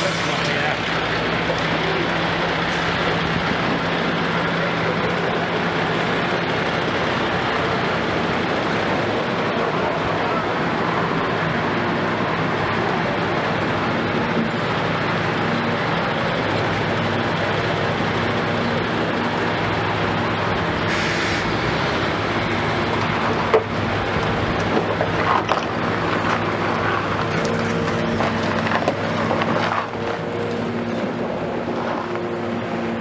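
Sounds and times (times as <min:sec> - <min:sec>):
truck diesel engine running: 0:00.0 - 0:33.0.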